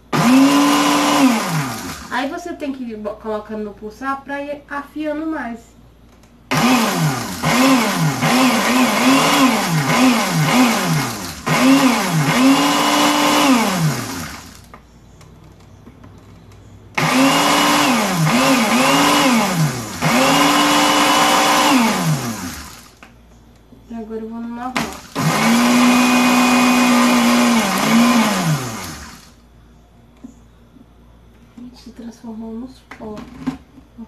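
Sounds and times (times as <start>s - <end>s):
blender pulsing: 0.0s - 2.2s, 6.5s - 14.7s, 17.0s - 23.0s, 24.7s - 29.4s.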